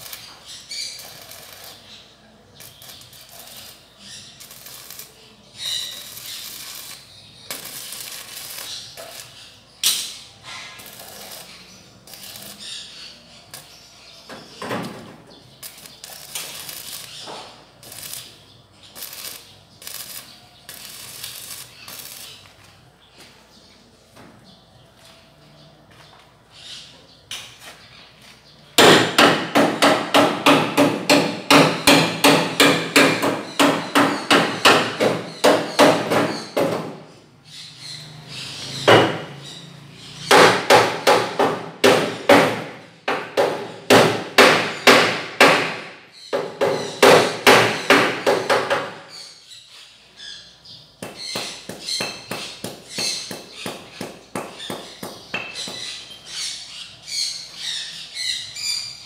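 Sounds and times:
hammer striking steel frame: 0:28.8 - 0:37.0, 0:40.3 - 0:49.1.

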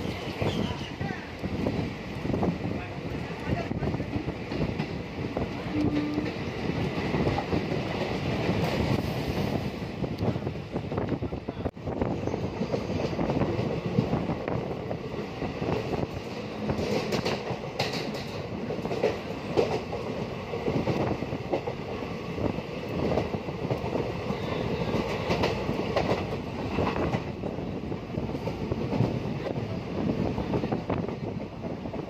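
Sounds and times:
train wheels rumbling on rails: 0:00.0 - 0:32.0
wheels clacking over rail joints: 0:15.6 - 0:22.0.

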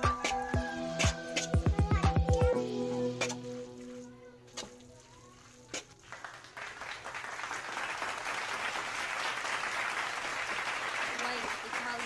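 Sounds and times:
background music: 0:00.0 - 0:05.2.

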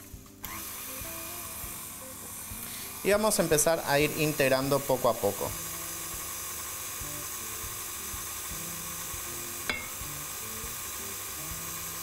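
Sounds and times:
stand mixer running: 0:00.4 - 0:12.0.

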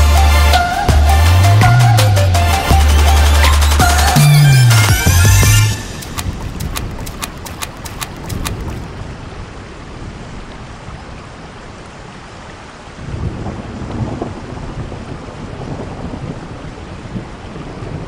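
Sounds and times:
rain on concrete roof: 0:05.8 - 0:18.0.

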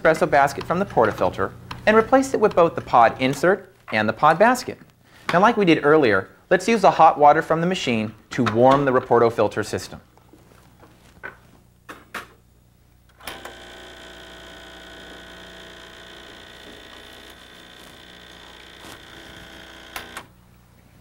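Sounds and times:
espresso machine pump running: 0:13.1 - 0:20.3.

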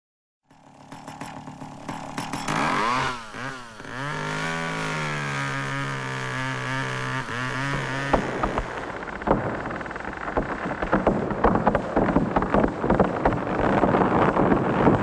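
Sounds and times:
chainsaw revving: 0:00.5 - 0:13.6
sharp cracks: 0:00.5 - 0:15.0.

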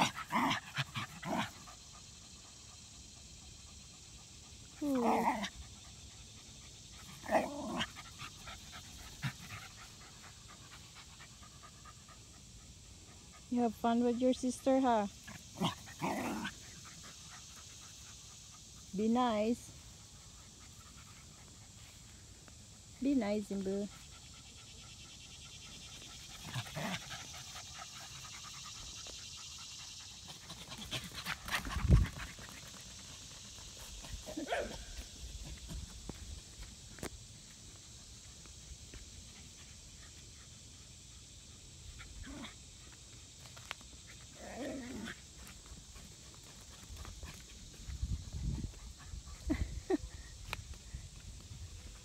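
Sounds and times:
dogs panting: 0:00.0 - 0:36.7, 0:38.9 - 0:52.0
dog growling: 0:07.2 - 0:08.0, 0:15.6 - 0:16.8, 0:44.4 - 0:45.2
dog panting fast: 0:23.7 - 0:34.2.

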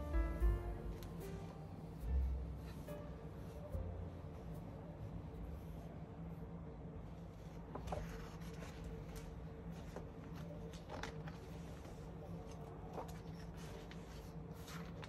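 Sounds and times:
steady low hum: 0:00.0 - 0:15.0
book pages turning: 0:07.3 - 0:15.0.

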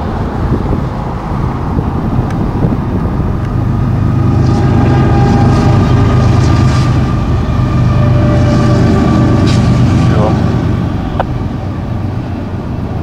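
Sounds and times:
locomotive engine rumble: 0:00.0 - 0:13.0
steady higher tones: 0:01.1 - 0:13.0.

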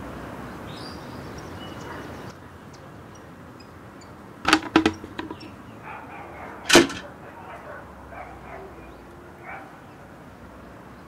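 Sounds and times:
metal bucket clanking: 0:04.5 - 0:05.5, 0:06.7 - 0:07.0.

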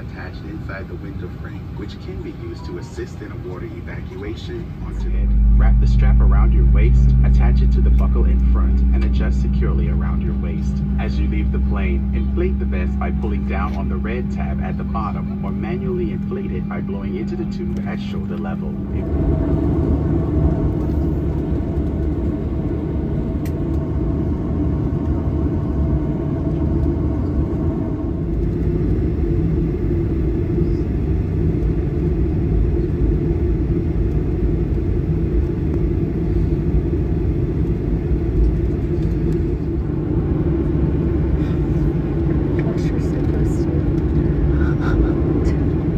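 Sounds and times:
airplane cabin low rumble: 0:00.0 - 0:45.9
faint steady tone: 0:02.5 - 0:23.9.

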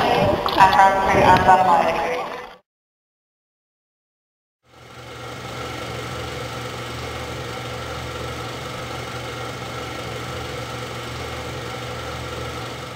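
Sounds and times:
aircraft engines idling: 0:04.8 - 0:12.9.

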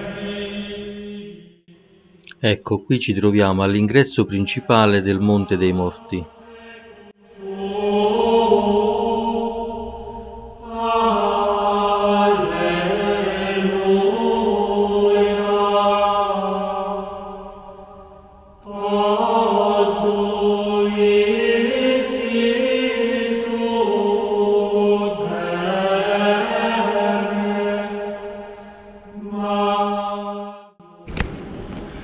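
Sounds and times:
sacred vocal chant: 0:00.0 - 0:31.3
low drone: 0:06.0 - 0:18.9.

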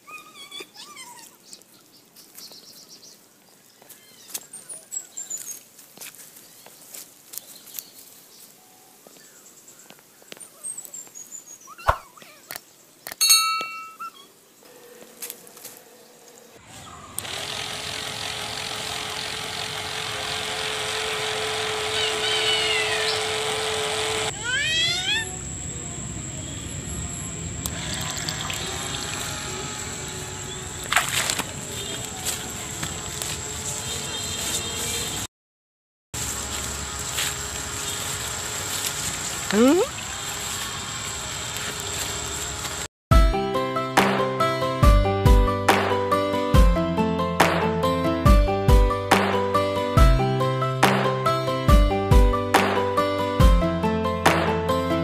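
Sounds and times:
birds chirping: 0:01.1 - 0:05.7, 0:06.3 - 0:17.2, 0:21.9 - 0:25.4, 0:27.7 - 0:35.3
humming tone: 0:25.2 - 0:33.9.

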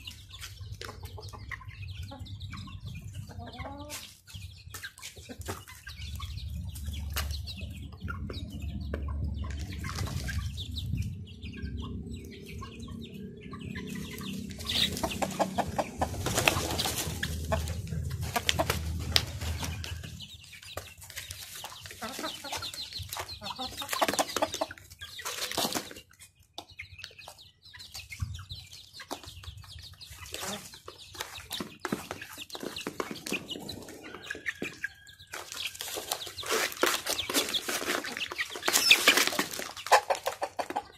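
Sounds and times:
chickens clucking: 0:00.0 - 0:40.9
chickens pecking on cardboard: 0:00.1 - 0:02.2, 0:02.8 - 0:07.5, 0:08.2 - 0:10.7, 0:14.1 - 0:40.9
low rumble: 0:06.1 - 0:20.5
wing flapping: 0:14.6 - 0:20.1.

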